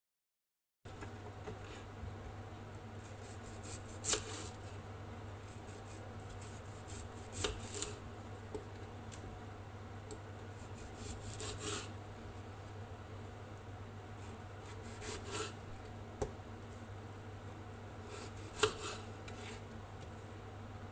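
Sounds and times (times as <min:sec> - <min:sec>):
steady low hum: 0:00.9 - 0:20.9
knife sawing through potato: 0:03.0 - 0:04.6, 0:05.4 - 0:08.0, 0:10.5 - 0:11.9, 0:14.2 - 0:15.6, 0:18.0 - 0:19.6.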